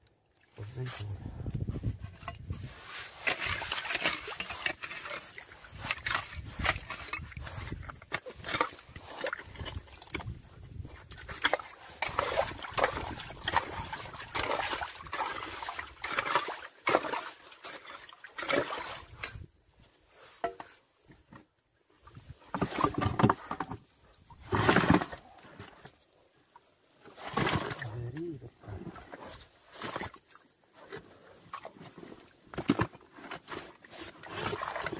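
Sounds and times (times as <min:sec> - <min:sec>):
hands scooping through mud: 0:00.7 - 0:19.2
metal bar digging in wet mud: 0:00.8 - 0:19.5, 0:22.5 - 0:23.7, 0:24.4 - 0:25.9, 0:27.0 - 0:34.9
wet squelches and splashes: 0:02.6 - 0:19.3, 0:24.7 - 0:32.6, 0:33.2 - 0:34.9.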